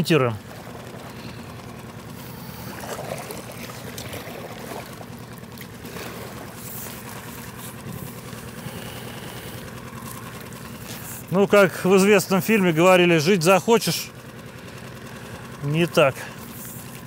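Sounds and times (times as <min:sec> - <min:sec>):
water lapping: 0:00.0 - 0:17.0
oar strokes splashing: 0:00.4 - 0:12.6.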